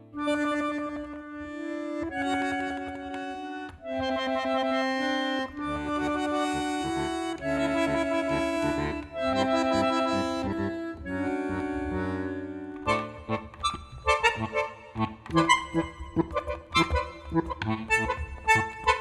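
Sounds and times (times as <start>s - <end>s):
instrumental melody of held notes: 0.0s - 19.0s.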